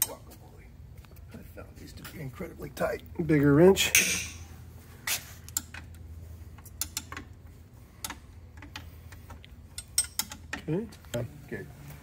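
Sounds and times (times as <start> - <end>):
steady low hum: 0.0 - 12.0
wrench clicking on metal nut: 6.7 - 7.2, 9.7 - 10.5.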